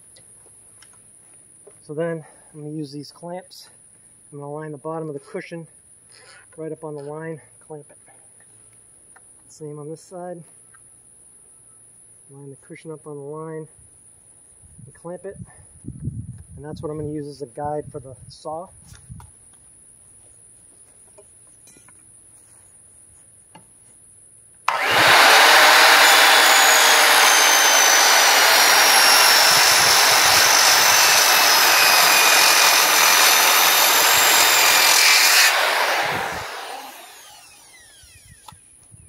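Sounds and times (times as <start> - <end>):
circular saw cutting wood: 24.7 - 38.6.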